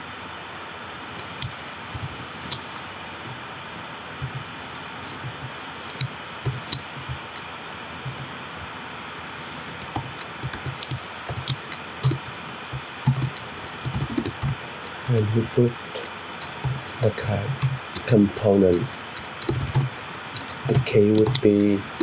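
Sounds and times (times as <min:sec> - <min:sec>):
steady hiss: 0:01.0 - 0:22.0
computer keyboard typing: 0:01.2 - 0:02.9, 0:04.8 - 0:07.4, 0:09.4 - 0:22.0.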